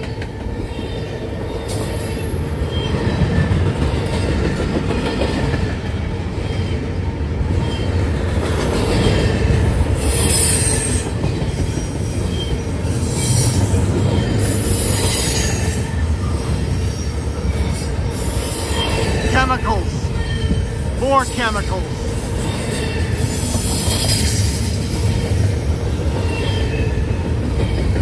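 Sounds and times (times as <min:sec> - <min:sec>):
train wheels rumbling on rails: 0:00.0 - 0:28.0.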